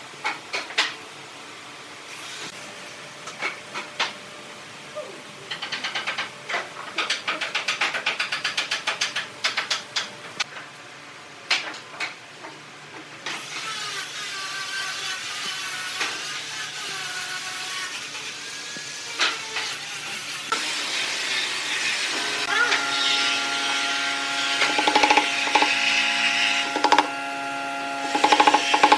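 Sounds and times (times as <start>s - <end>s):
mechanical hum with wavering whine: 0.0s - 28.9s.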